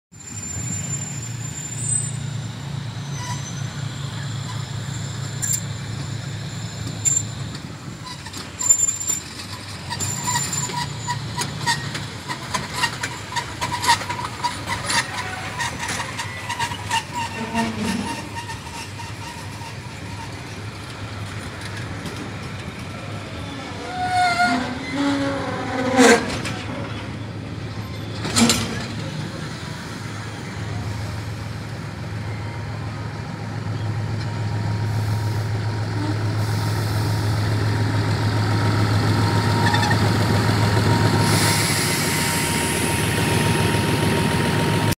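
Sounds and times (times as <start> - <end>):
loud train clank: 3.3 - 23.1, 23.9 - 32.4
train wheels clicking over rail joints: 4.5 - 23.2, 24.2 - 31.7
locomotive diesel drone: 25.6 - 45.0.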